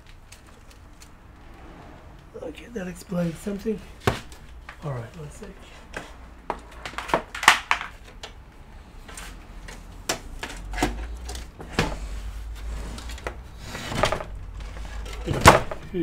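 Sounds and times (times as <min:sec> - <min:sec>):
cables and connectors clicking: 0:00.0 - 0:01.3.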